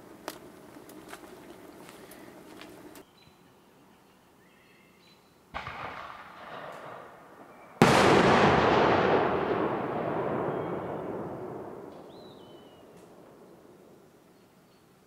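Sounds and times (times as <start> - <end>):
booms with rumbling decay: 5.6 - 7.2, 7.8 - 13.6.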